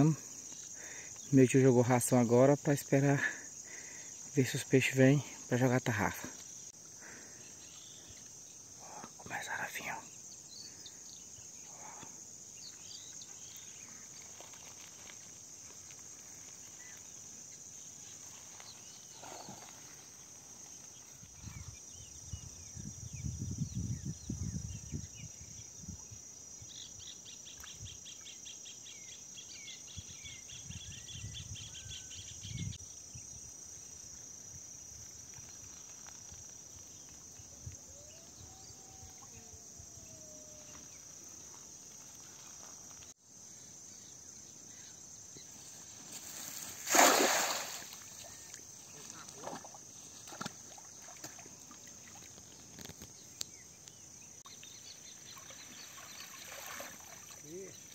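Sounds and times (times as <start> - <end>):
insect trilling: 33.8 - 44.1, 44.7 - 57.9
net splashing into water: 46.2 - 48.6, 55.4 - 57.5.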